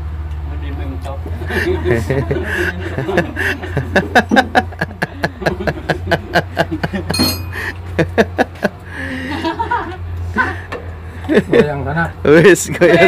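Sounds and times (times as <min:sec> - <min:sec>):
metallic ring: 0:07.1 - 0:07.9.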